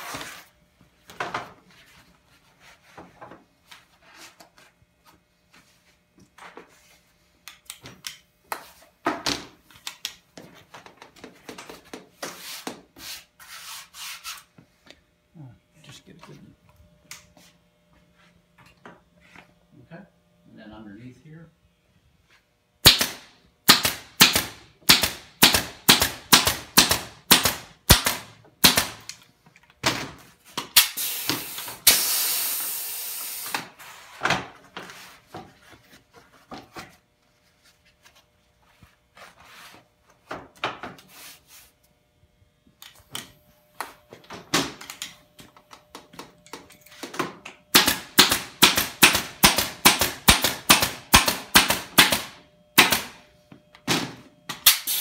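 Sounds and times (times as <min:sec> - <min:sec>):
pneumatic staple gun firing: 0:22.8 - 0:29.2, 0:30.7 - 0:33.7, 0:47.7 - 0:53.2, 0:53.8 - 0:55.0.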